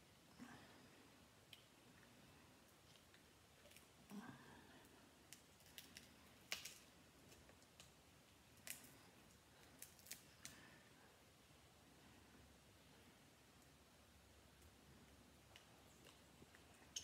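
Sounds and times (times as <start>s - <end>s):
seafood shells cracking: 5.3s - 7.9s, 9.8s - 10.3s.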